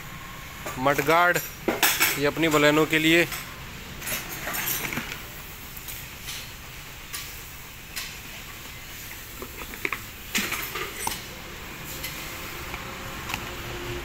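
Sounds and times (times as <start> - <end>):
plastic and cardboard rustling: 8.5 - 11.3.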